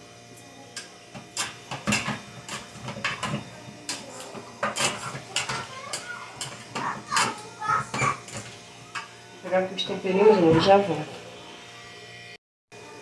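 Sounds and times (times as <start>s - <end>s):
spoon scraping metal pot: 1.4s - 9.1s.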